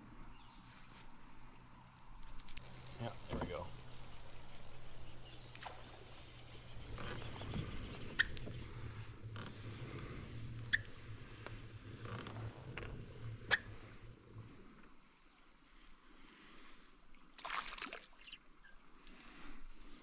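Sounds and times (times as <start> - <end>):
reel clicks: 1.9 - 7.5
fishing reel whirring: 2.2 - 7.4.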